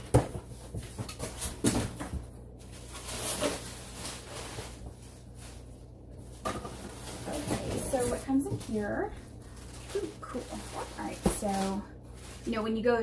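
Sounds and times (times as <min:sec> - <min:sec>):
cardboard flaps knocking and clicking: 0:00.0 - 0:02.3
cardboard rustling scrape: 0:02.6 - 0:12.9.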